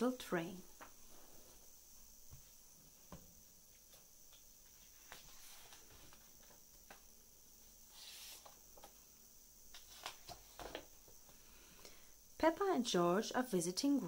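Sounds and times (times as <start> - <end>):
page turning: 4.7 - 7.0, 7.9 - 9.0, 9.7 - 10.9.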